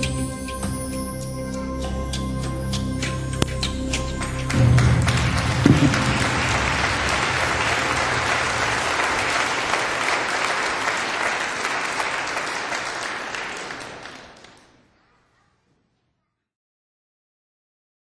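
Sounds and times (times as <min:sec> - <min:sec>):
low music notes: 0:00.0 - 0:09.7
audience applauding: 0:04.1 - 0:14.8.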